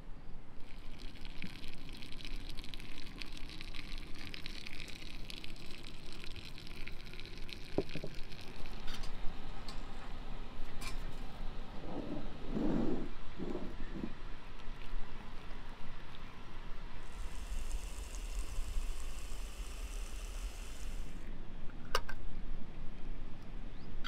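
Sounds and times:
liquid pouring into glass jars: 0.6s - 9.1s, 17.0s - 21.1s.

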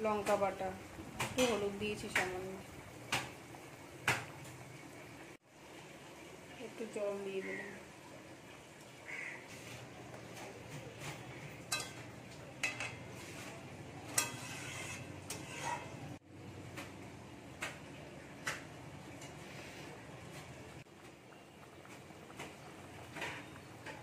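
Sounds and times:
metal utensils clinking on pan: 10.4s - 16.0s.

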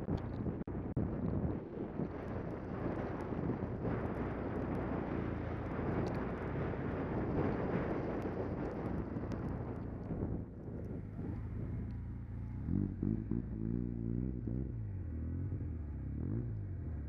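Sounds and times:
wind buffeting microphone: 0.0s - 13.6s
light ticks: 5.6s - 6.5s, 7.4s - 10.2s.

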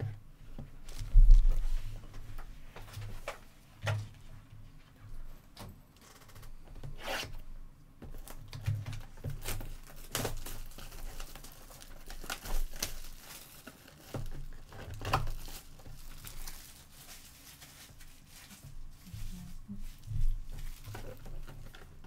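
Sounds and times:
plastic wrap tearing and crinkling: 0.8s - 1.8s, 8.2s - 22.0s.

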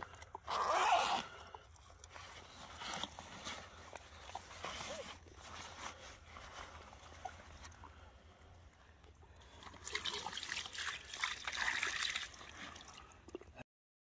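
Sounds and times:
water pouring and splashing: 9.1s - 13.6s.

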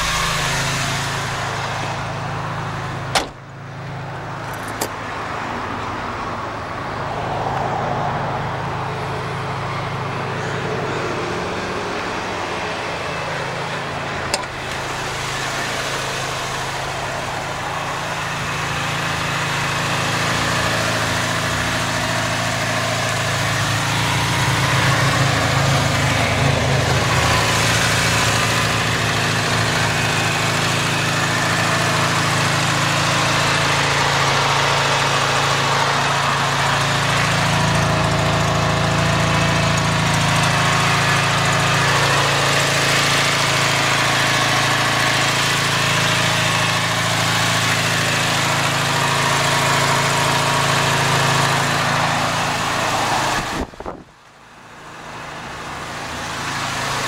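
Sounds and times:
truck engine idling: 0.0s - 7.6s, 8.3s - 57.0s
sharp knock: 3.1s - 3.5s.

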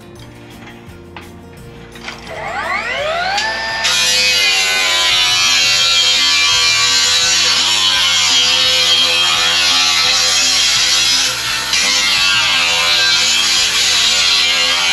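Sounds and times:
background music: 0.0s - 14.9s
power tool motor buzzing: 2.3s - 14.9s.

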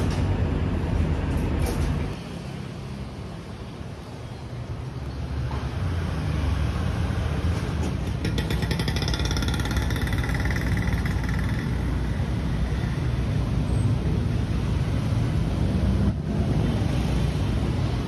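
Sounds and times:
car and motorbike engines rumbling: 0.0s - 18.0s
high pulsing whine: 8.3s - 14.4s.

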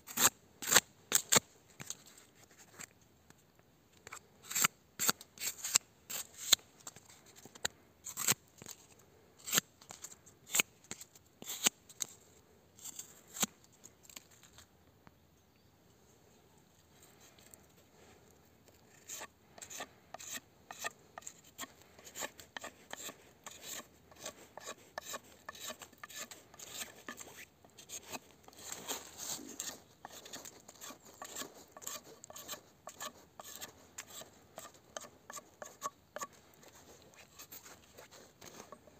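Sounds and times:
knife whittling wood: 19.0s - 28.2s, 29.0s - 36.4s.

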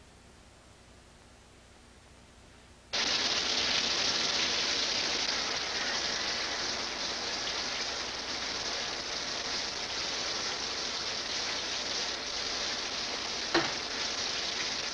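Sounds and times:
shower spraying water: 3.0s - 14.9s.

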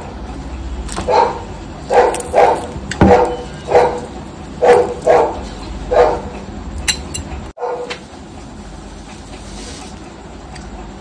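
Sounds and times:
dog barking: 1.0s - 6.3s, 7.6s - 7.9s.

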